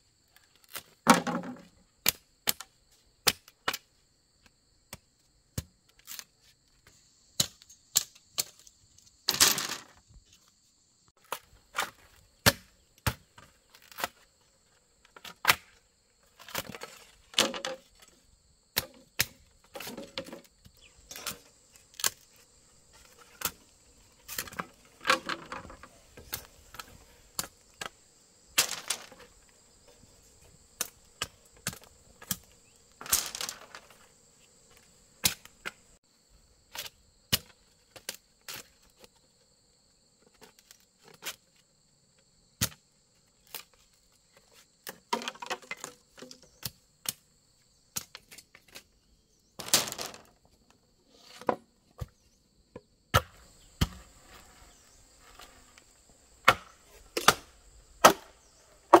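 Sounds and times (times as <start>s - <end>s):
insects chirring: 0.0s - 59.0s
bamboo knocking and cracking: 0.4s - 8.7s, 11.2s - 14.2s, 15.0s - 15.8s, 16.4s - 22.4s, 24.3s - 28.0s, 28.6s - 29.4s, 30.8s - 33.9s, 34.7s - 35.8s, 36.7s - 39.1s, 42.6s - 42.8s, 43.4s - 47.2s, 47.9s - 48.8s, 51.4s - 54.1s, 56.4s - 59.0s.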